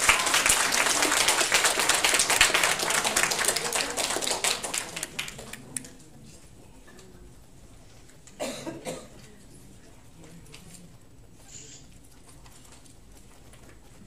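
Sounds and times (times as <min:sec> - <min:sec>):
audience applauding: 0:00.0 - 0:05.8.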